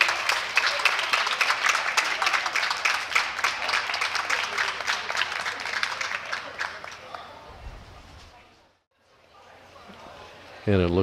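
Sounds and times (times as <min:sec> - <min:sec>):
audience applauding: 0:00.0 - 0:07.5.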